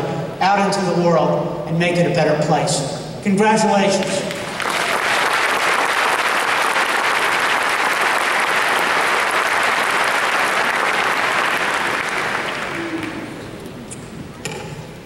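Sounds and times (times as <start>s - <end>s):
crowd applauding: 4.0s - 13.8s.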